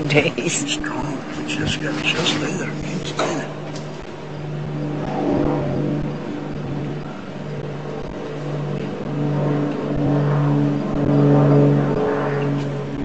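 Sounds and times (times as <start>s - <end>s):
motor humming: 0.0s - 13.0s.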